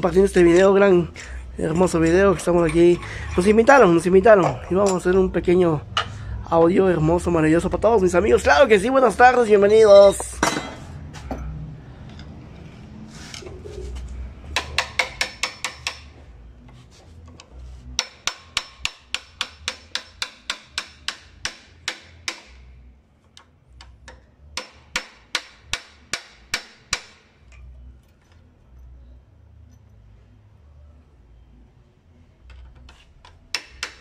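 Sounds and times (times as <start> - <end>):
hammer tapping metal rod: 14.6 - 16.1, 18.0 - 22.6, 33.5 - 34.0.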